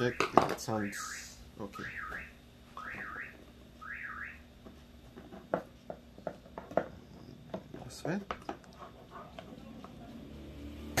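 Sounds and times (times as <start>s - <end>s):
high warbling chirp: 0.0s - 4.4s.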